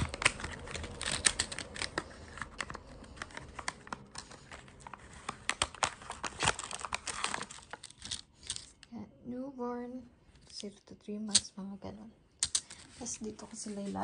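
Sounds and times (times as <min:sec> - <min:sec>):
packaging clicking and crinkling: 0:00.0 - 0:08.9, 0:12.4 - 0:12.9.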